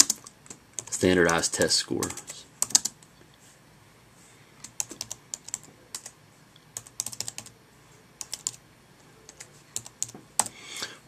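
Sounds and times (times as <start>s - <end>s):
typing on a keyboard: 0.0s - 3.0s, 4.6s - 6.2s, 6.8s - 7.5s, 8.2s - 8.6s, 9.3s - 10.5s.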